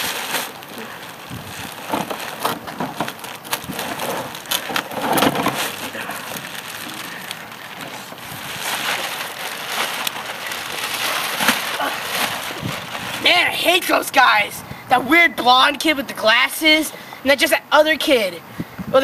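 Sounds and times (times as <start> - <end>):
plastic bag rustling and crinkling: 0.0 - 13.5.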